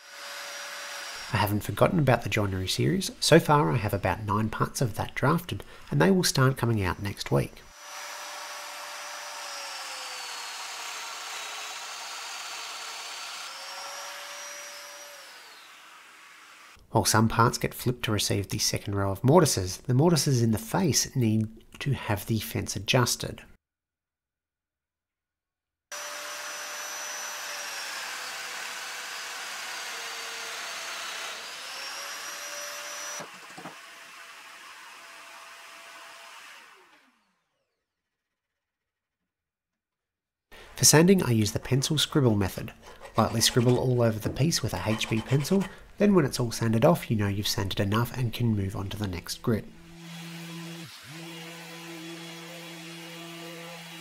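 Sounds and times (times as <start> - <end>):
power joiner motor whine: 7.8 - 16.8, 25.9 - 37.9, 50.0 - 54.0.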